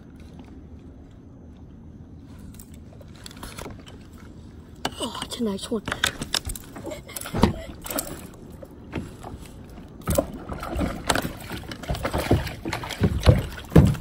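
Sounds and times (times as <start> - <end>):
knocks and thumps on a kayak: 8.9 - 14.0.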